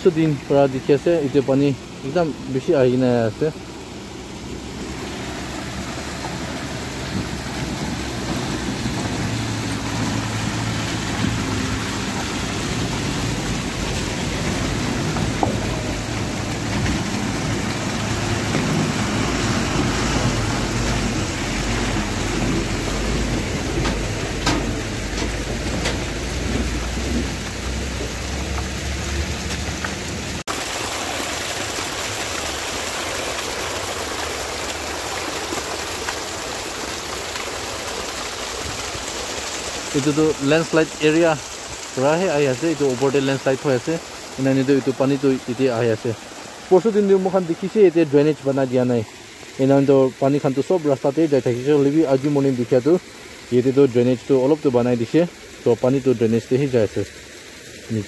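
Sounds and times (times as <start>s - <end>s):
water rushing down rock: 0.0s - 58.0s
water splashing over rock: 0.0s - 58.0s
truck diesel engine passing: 2.0s - 30.4s.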